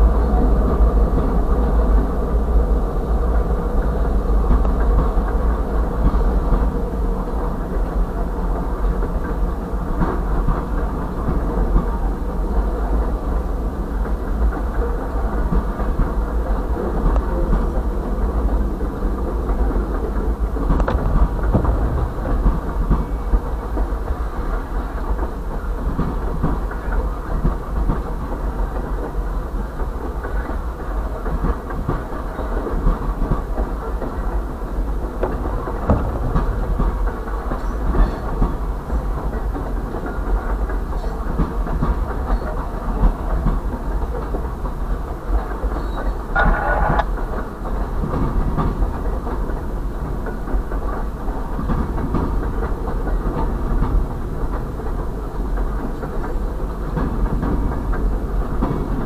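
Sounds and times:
low train rumble: 0:00.0 - 0:59.0
train wheels clattering over rail joints: 0:00.0 - 0:59.0.

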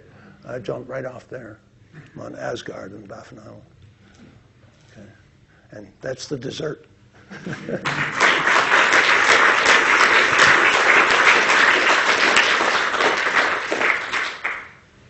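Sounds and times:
audience applauding: 0:07.5 - 0:14.9.

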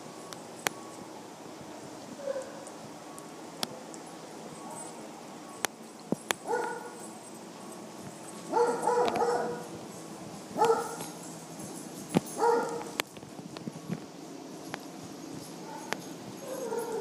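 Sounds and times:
small dog barking: 0:02.2 - 0:02.6, 0:06.4 - 0:07.0, 0:08.5 - 0:09.7, 0:10.6 - 0:11.1, 0:12.4 - 0:13.0, 0:15.6 - 0:17.0.

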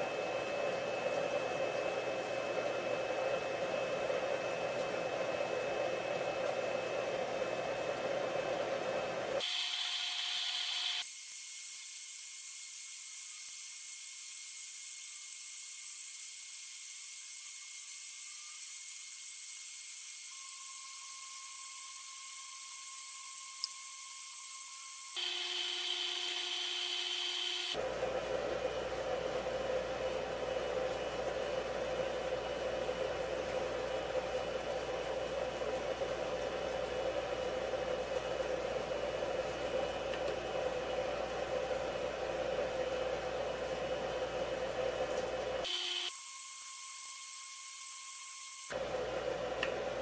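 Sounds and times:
power inverter whirring: 0:00.0 - 0:11.1, 0:20.2 - 0:50.0.

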